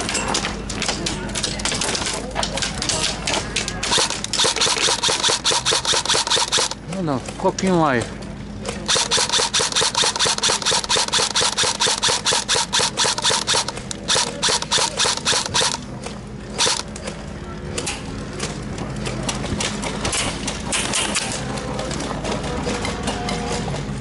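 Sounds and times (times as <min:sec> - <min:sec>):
airsoft gun firing bursts: 0:03.9 - 0:06.8, 0:08.9 - 0:15.8, 0:16.6 - 0:16.8.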